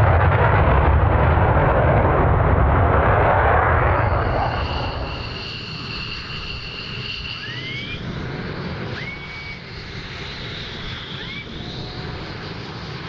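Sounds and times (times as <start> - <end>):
high whine: 0.0 - 13.0
jet engines rumbling in distance: 0.0 - 13.0
short rising whistles: 3.8 - 12.6.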